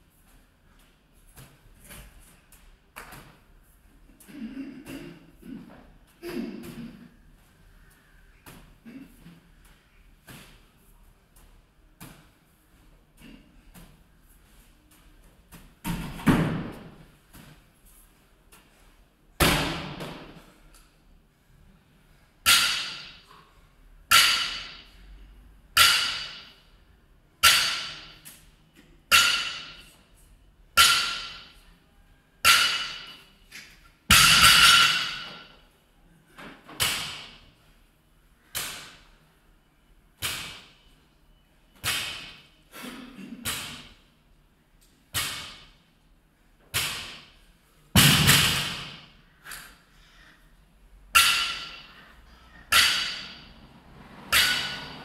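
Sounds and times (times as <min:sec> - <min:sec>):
barbell hitting gym floor: 0:22.5 - 0:23.3, 0:24.1 - 0:25.0, 0:29.1 - 0:29.9, 0:30.8 - 0:31.6, 0:32.5 - 0:33.2, 0:34.1 - 0:35.6, 0:48.0 - 0:49.2, 0:51.2 - 0:52.0, 0:52.7 - 0:53.5, 0:54.3 - 0:55.0.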